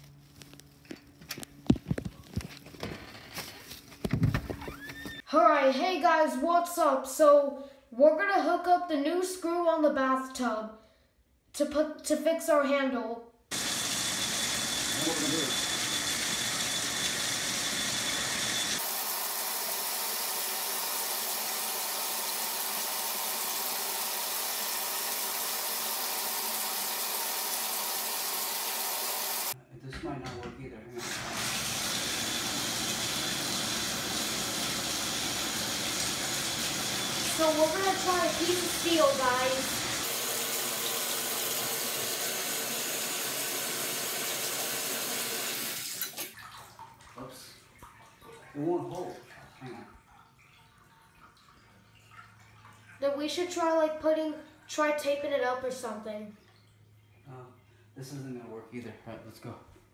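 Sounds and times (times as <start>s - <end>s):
water running from bathtub spout: 13.5s - 29.6s, 31.0s - 53.1s.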